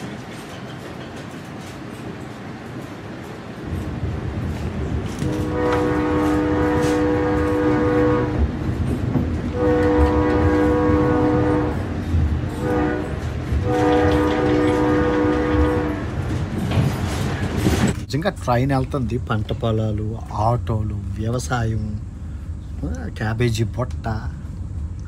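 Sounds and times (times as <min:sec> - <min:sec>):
train rumbling at speed: 0:00.0 - 0:25.0
train horn blasts: 0:05.1 - 0:08.7, 0:09.4 - 0:16.4.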